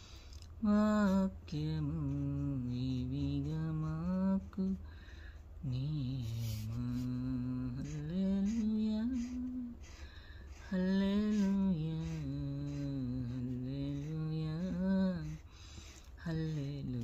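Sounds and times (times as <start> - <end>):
low steady hum: 0.0 - 17.0
woman singing a hymn: 0.6 - 4.8, 5.6 - 10.0, 10.6 - 15.4, 16.2 - 17.0.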